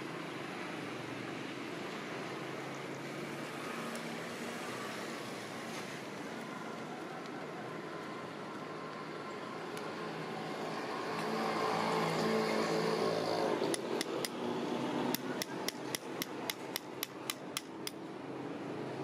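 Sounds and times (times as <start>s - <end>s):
small hammer tapping a nail: 13.7s - 14.4s, 15.1s - 18.0s.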